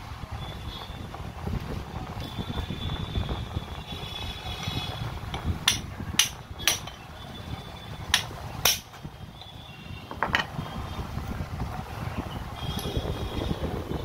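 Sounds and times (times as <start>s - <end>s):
hammer striking steel: 5.4s - 7.0s, 8.1s - 9.0s.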